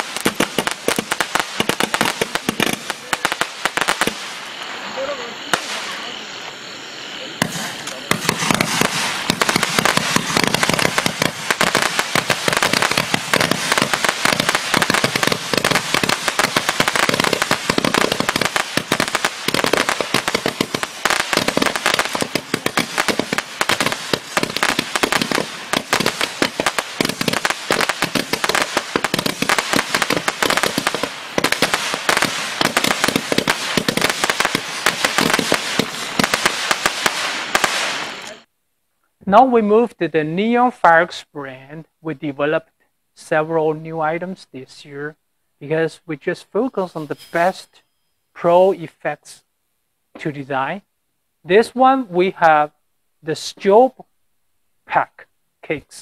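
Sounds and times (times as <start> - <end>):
firework candle popping: 0.0 - 6.8, 7.4 - 38.5.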